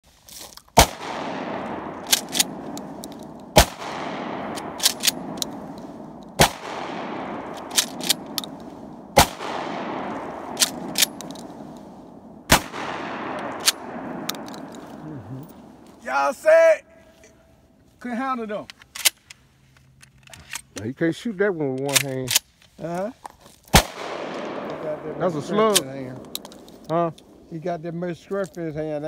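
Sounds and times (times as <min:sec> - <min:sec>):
shotgun shots echoing: 0:00.8 - 0:16.1, 0:23.7 - 0:27.6
shotgun pump clacking: 0:04.5 - 0:06.3, 0:07.4 - 0:08.7.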